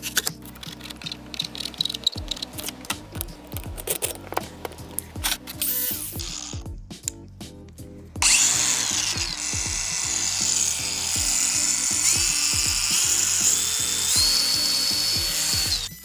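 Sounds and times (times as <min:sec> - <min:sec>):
background music with steady beat: 0:00.0 - 0:16.0
angle grinder cutting tile: 0:08.2 - 0:16.0.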